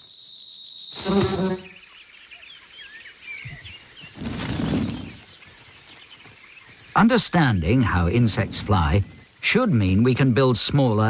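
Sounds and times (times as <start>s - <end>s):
faint outdoor ambience: 0.0s - 11.0s
small birds chirping: 0.0s - 11.0s
fly wings buzzing: 0.9s - 1.8s, 4.1s - 5.3s.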